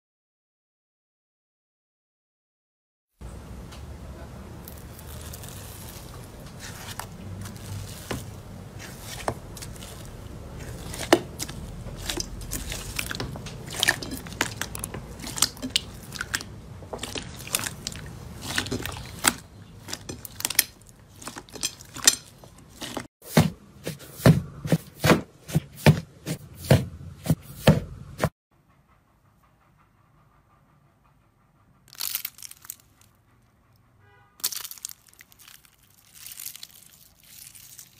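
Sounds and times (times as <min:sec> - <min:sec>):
slime crackling and popping: 0:31.9 - 0:32.8, 0:34.4 - 0:37.9.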